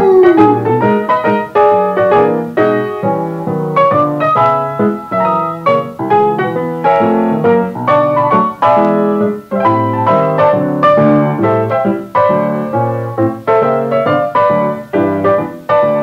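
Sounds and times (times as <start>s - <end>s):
solo piano music: 0.0s - 16.0s.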